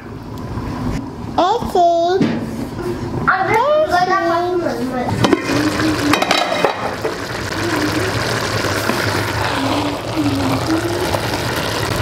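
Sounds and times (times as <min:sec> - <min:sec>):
stove burner rushing: 0:05.1 - 0:12.0
metal utensils clattering on pot: 0:05.2 - 0:07.2.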